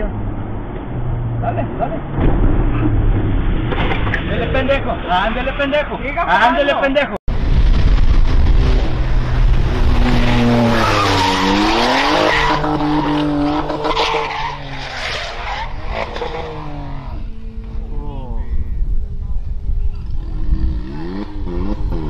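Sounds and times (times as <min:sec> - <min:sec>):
racing car engine at high revs: 0:08.2 - 0:17.9, 0:20.3 - 0:22.0
tyres skidding: 0:08.2 - 0:17.9.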